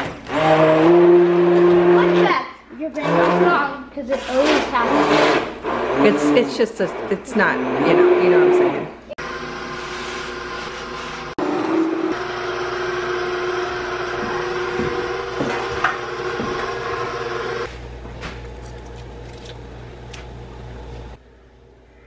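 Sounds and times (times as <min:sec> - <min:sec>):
immersion blender running: 0:00.0 - 0:02.4, 0:03.0 - 0:17.8.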